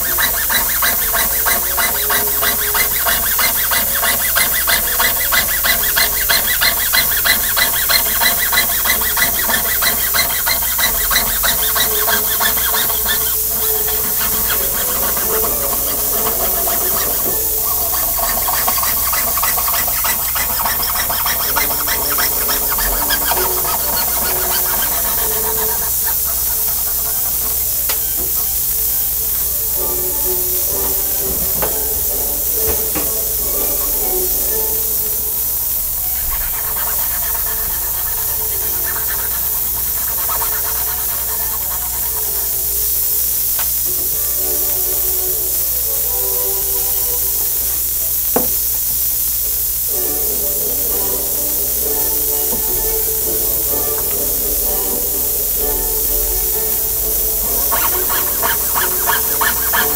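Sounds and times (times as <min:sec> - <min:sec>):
saw blade rasping through metal: 0:00.0 - 0:28.6, 0:36.1 - 0:42.6, 0:57.4 - 0:59.9.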